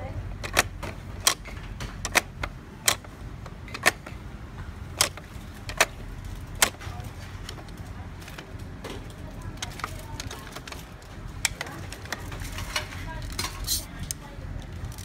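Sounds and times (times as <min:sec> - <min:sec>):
hard plastic clicks and taps: 0:00.4 - 0:06.0.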